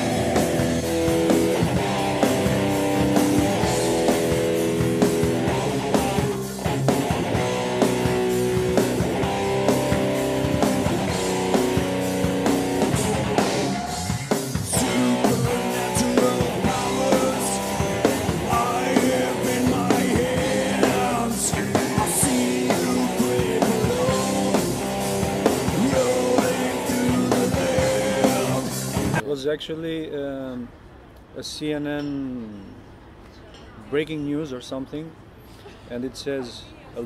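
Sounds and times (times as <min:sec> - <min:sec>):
heavy rock band playing: 0:00.0 - 0:29.2.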